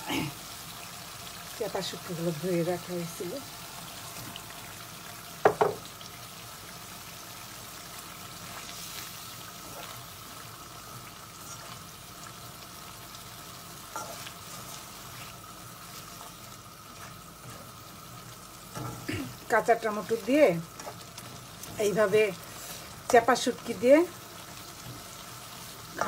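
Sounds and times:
spices sizzling in wok: 0:00.0 - 0:26.0
spatula scraping: 0:13.9 - 0:17.8.

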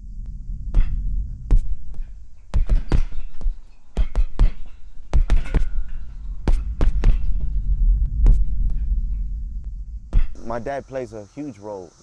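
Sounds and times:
low steady throb: 0:00.0 - 0:11.4
boxing glove punches thudding: 0:02.5 - 0:05.7.

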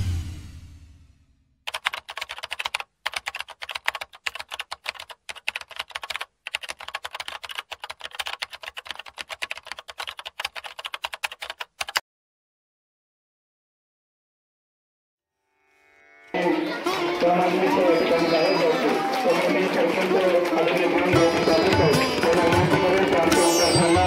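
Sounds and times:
rapid keyboard typing: 0:01.7 - 0:12.0, 0:19.9 - 0:23.8.

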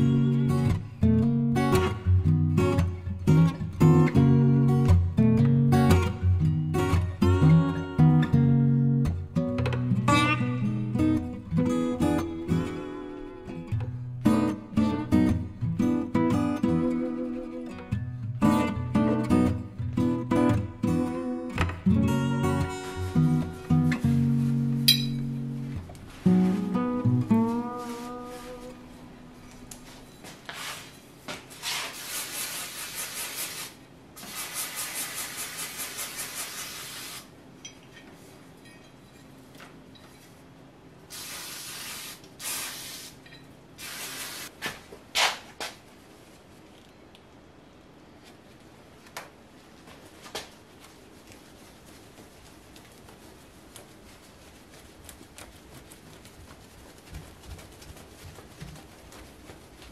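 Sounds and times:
cloth rag rubbing metal: 0:22.3 - 0:29.2.

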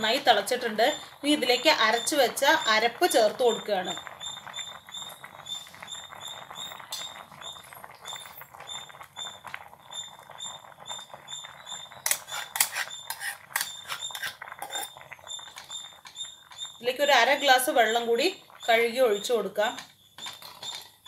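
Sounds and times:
steel ladle scraping clay pot: 0:12.0 - 0:16.0.

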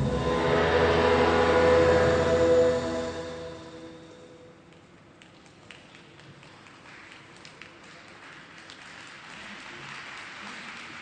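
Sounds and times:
audience clapping: 0:05.2 - 0:11.0.

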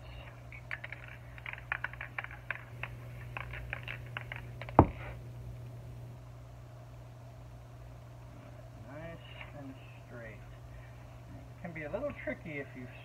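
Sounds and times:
low steady hum: 0:00.0 - 0:13.0
sharp thump: 0:04.8 - 0:05.1.

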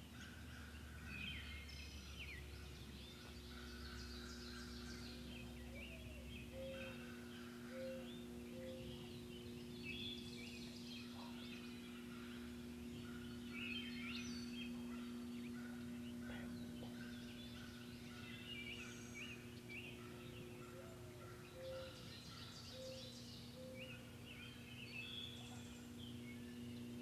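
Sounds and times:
low steady hum: 0:00.0 - 0:27.0
songbirds chirping: 0:00.0 - 0:27.0
turkeys gobbling: 0:14.8 - 0:18.9.

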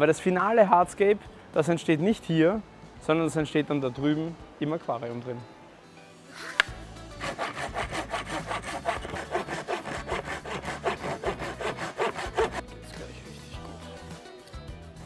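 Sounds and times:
hand saw cutting wood: 0:07.1 - 0:12.7.

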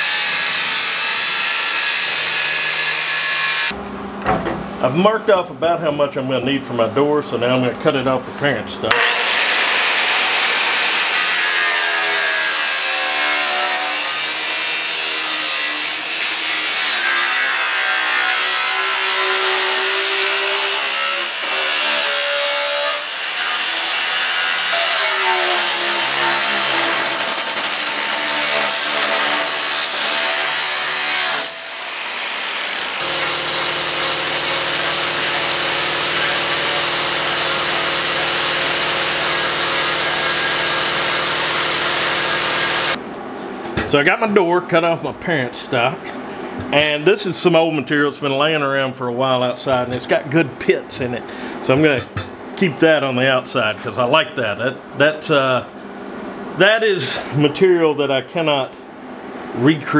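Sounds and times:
angle grinder cutting steel: 0:00.0 - 0:03.8, 0:08.9 - 0:43.0
small angle grinder running: 0:31.8 - 0:43.0.

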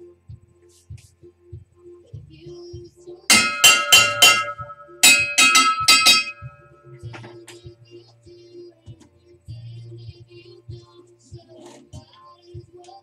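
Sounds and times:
hammer striking steel: 0:03.3 - 0:06.7.

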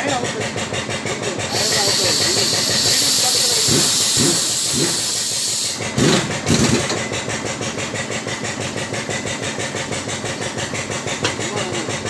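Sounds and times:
hydraulic pump pulsing: 0:00.0 - 0:12.0
hiss: 0:01.5 - 0:05.9.

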